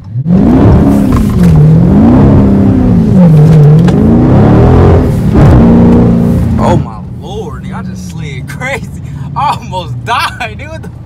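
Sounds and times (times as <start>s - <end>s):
car engine revving hard: 0.0s - 6.9s.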